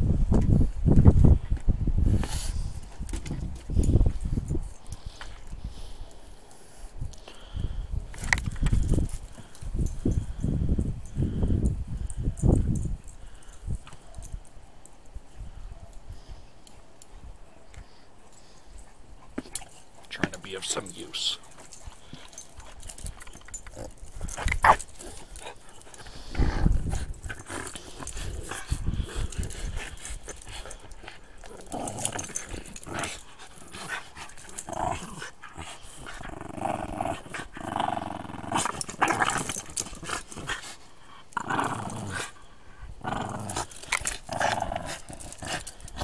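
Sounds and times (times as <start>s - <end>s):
dogs growling: 20.6s - 46.0s.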